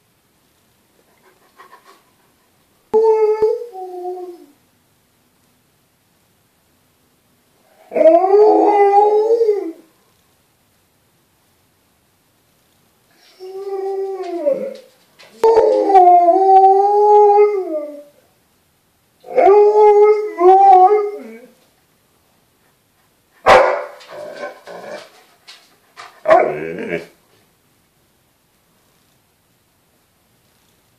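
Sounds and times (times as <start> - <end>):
dog howling: 7.8 - 9.9, 13.2 - 18.2, 19.2 - 21.6, 26.2 - 27.2.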